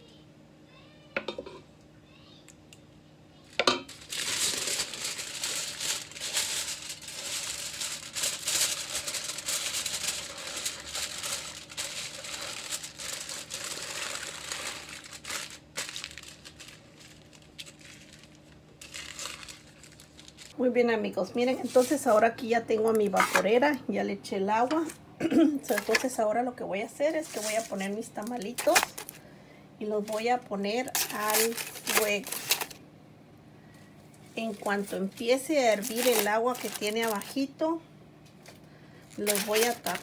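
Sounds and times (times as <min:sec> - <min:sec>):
aluminium foil crinkling: 0:03.9 - 0:20.6, 0:21.5 - 0:22.2, 0:25.6 - 0:26.2, 0:27.0 - 0:29.2, 0:30.0 - 0:32.8, 0:34.4 - 0:37.7, 0:38.4 - 0:40.0.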